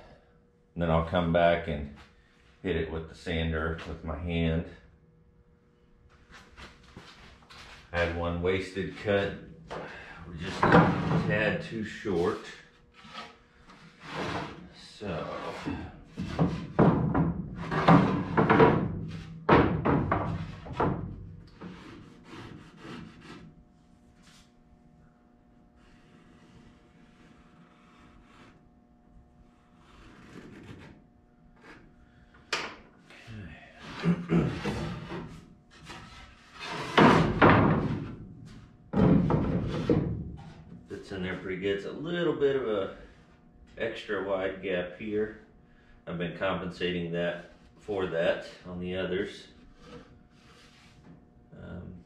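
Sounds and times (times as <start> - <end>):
wooden boards knocking and scraping: 9.7 - 11.4, 16.1 - 22.6, 34.6 - 40.8.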